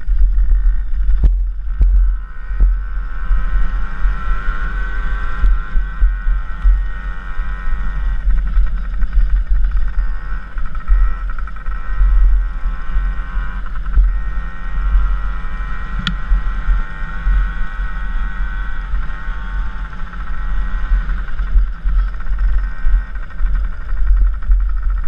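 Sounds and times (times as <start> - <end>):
dirt bike engine running: 0.0 - 25.0
sharp tick: 16.0 - 16.4.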